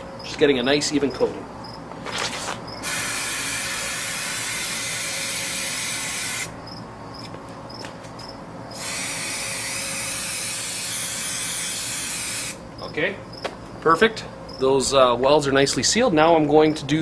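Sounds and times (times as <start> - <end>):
spray can hissing: 2.8 - 6.5, 8.8 - 12.6.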